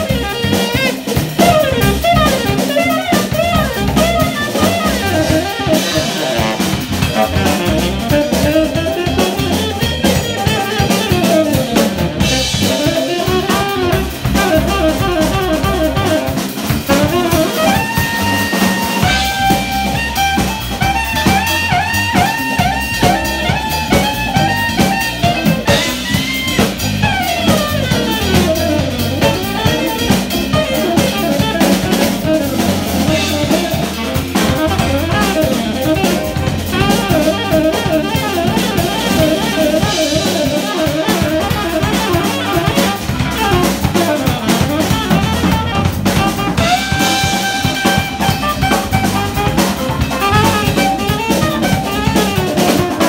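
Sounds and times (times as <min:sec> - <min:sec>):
drum kit: 0:00.0 - 0:53.0
electric bass: 0:00.0 - 0:53.0
electric guitar: 0:00.0 - 0:53.0
saxophone melody: 0:00.0 - 0:53.0.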